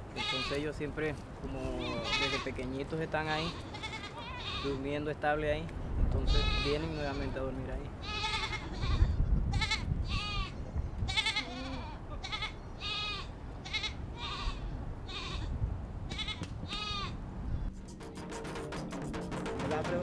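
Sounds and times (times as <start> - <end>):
goats bleating: 0.1 - 0.7, 1.7 - 2.6, 3.3 - 4.8, 6.2 - 7.4, 8.0 - 15.5, 16.1 - 17.2.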